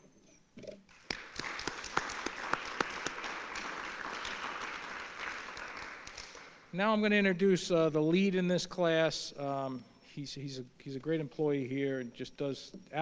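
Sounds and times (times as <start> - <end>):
audience applauding: 0.9 - 6.7.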